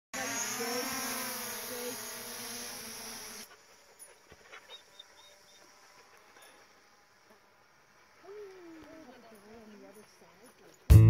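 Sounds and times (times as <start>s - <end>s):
drone propellers buzzing: 0.2s - 3.5s.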